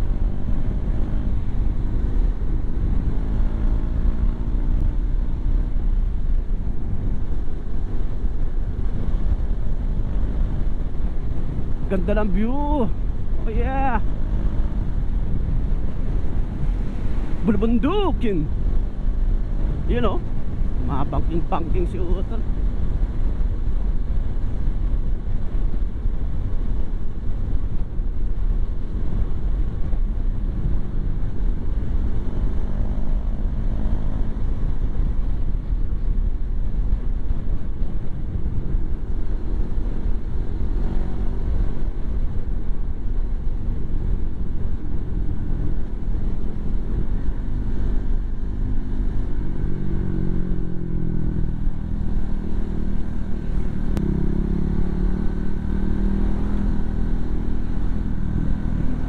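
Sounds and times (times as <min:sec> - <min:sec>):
wind rushing over microphone: 0:00.0 - 0:59.0
motorcycle engine running: 0:28.7 - 0:59.0.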